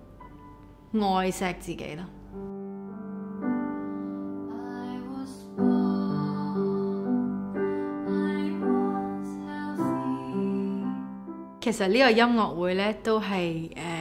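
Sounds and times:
piano chords: 0.0 - 13.8
woman singing with vibrato: 8.0 - 11.0.

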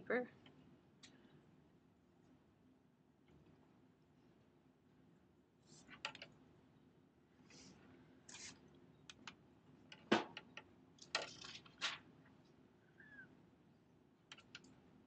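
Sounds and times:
faint squeak: 12.8 - 13.3
clicks and taps: 14.3 - 14.7.

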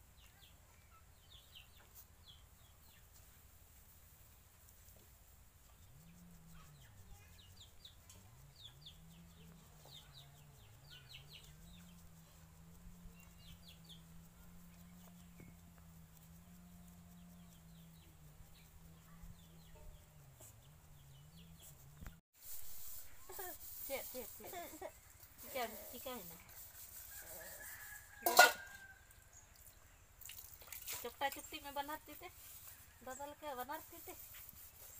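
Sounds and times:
faint low hum: 3.6 - 22.2
birds chirping: 12.8 - 15.8.

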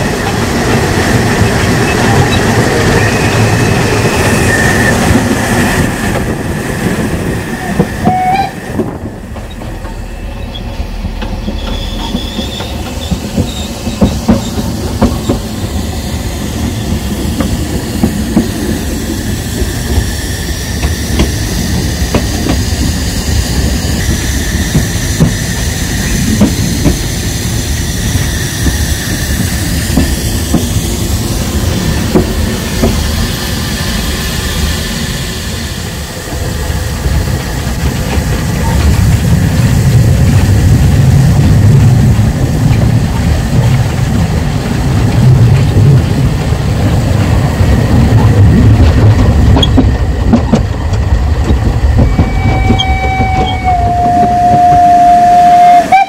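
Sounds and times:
train wheels clattering on rails: 0.0 - 56.0
steam whistle: 8.0 - 8.6, 52.0 - 56.0.

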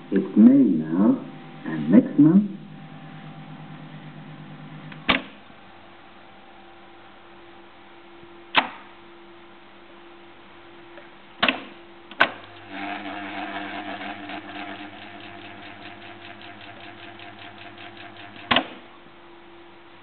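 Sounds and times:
tape recorder motor hum: 0.0 - 6.6, 12.1 - 19.2
tape spooling with fluttering tick: 12.5 - 18.6.

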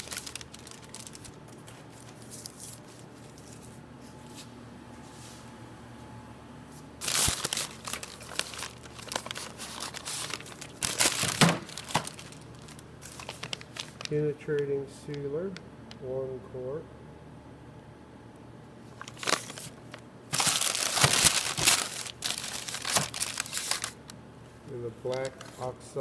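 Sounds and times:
paper and plastic crinkling: 0.0 - 4.5, 7.0 - 14.2, 18.9 - 24.1, 25.0 - 25.8.

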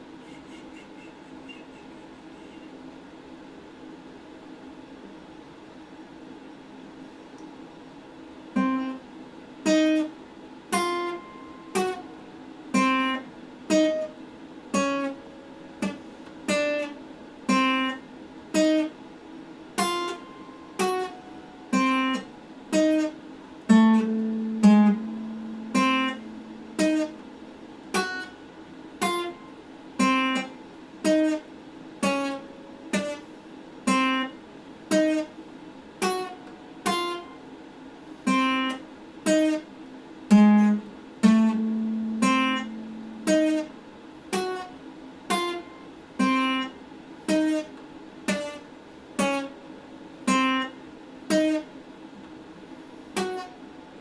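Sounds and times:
acoustic guitar chord strokes: 19.8 - 28.4, 40.3 - 44.7.

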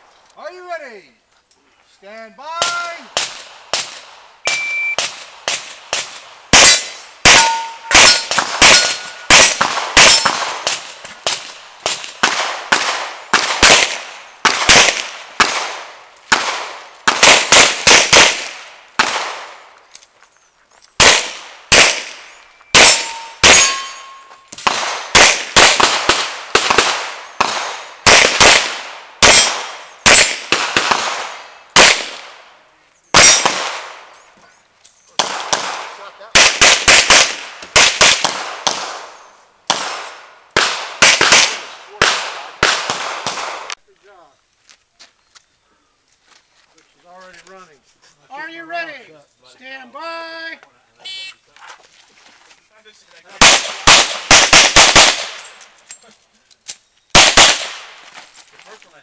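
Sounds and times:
steel plate targets ringing: 4.5 - 5.0, 6.6 - 10.4, 22.7 - 24.5.

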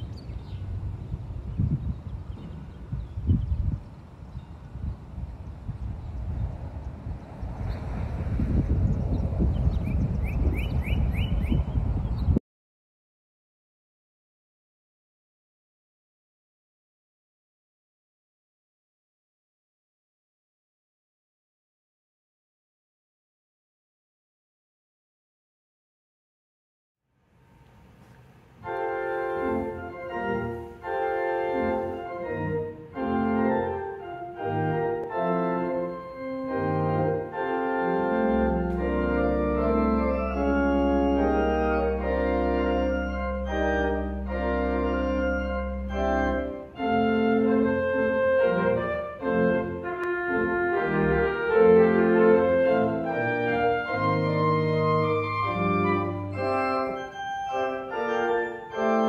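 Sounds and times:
low organ pedal note: 27.3 - 59.0
pipe organ chords: 27.4 - 59.0.

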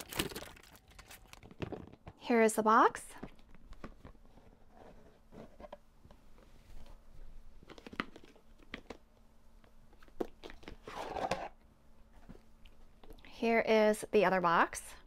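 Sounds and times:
paper packaging rustling: 0.0 - 2.0.

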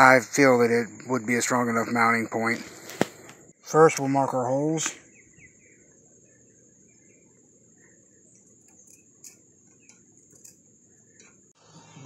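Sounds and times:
steady high hiss: 0.0 - 12.0
faint ticks: 7.8 - 11.5.

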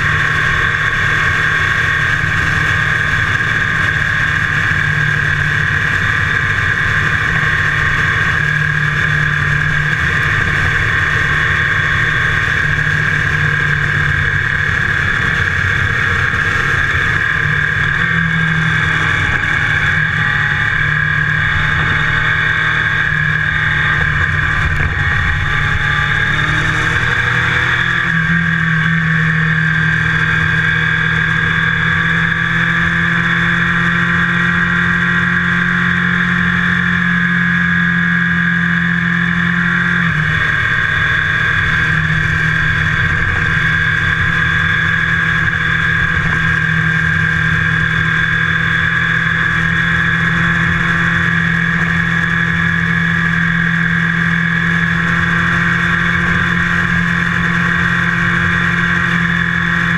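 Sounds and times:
wind noise: 0.0 - 29.2
motorcycle engine running: 0.0 - 59.9
road noise: 0.0 - 59.9.

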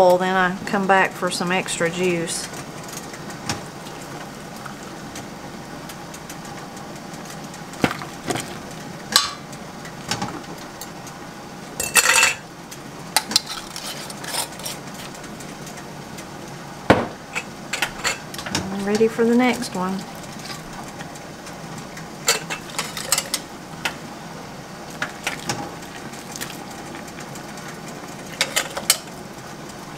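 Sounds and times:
brine pouring: 7.8 - 9.0, 24.8 - 28.4.

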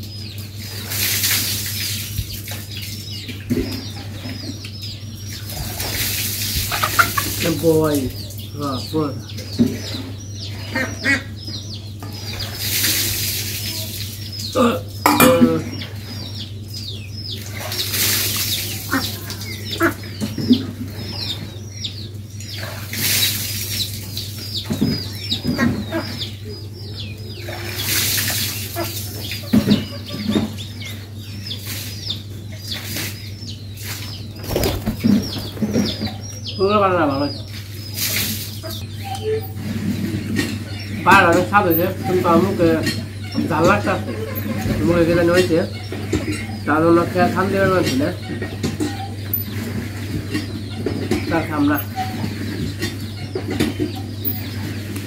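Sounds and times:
chickens clucking: 0.0 - 55.0
chickens peeping: 0.0 - 55.0
steady low hum: 1.5 - 27.8
knocks and clinks: 15.1 - 15.6.

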